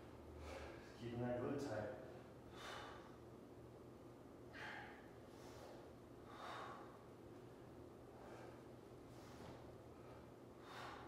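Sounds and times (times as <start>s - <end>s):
faint low hum: 0.0s - 11.0s
man breathing softly: 0.3s - 1.0s, 2.2s - 3.4s, 4.5s - 11.0s.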